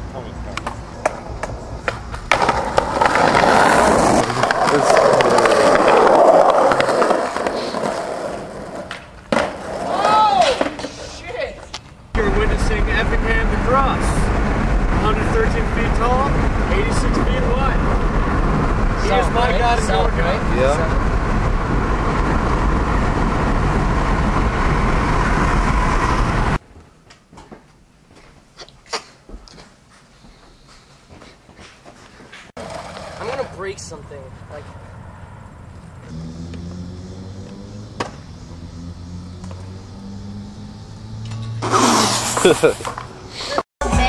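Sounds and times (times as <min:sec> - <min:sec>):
vehicle road and wind noise: 0:00.0 - 0:09.6, 0:11.8 - 0:26.6, 0:32.5 - 0:44.0
skateboard wheels rolling on concrete: 0:00.1 - 0:27.7, 0:29.2 - 0:40.4, 0:41.3 - 0:44.0
skateboard clack: 0:00.5 - 0:11.8, 0:32.6 - 0:33.6.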